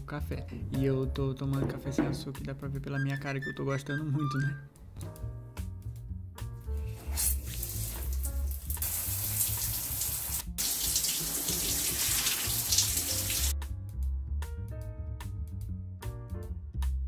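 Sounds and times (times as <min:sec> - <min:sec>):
background music with low beat: 0:00.0 - 0:09.8, 0:13.1 - 0:17.0
shower water running: 0:06.8 - 0:13.6.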